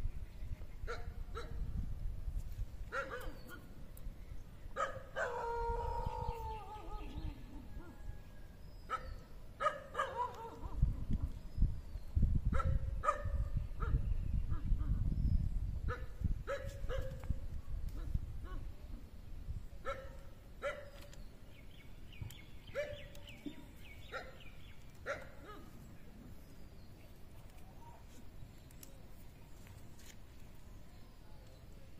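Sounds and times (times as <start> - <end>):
dog barking: 0.9 - 1.6, 2.9 - 3.4, 4.8 - 5.5, 8.9 - 10.6, 12.6 - 14.0, 19.8 - 20.9, 22.7 - 23.1, 24.1 - 24.4, 25.0 - 25.7.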